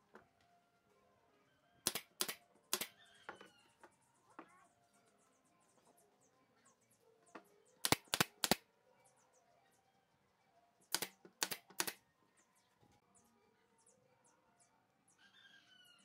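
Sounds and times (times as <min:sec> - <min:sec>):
nail gun firing: 0:01.9 - 0:02.9, 0:07.8 - 0:08.6, 0:10.9 - 0:12.0.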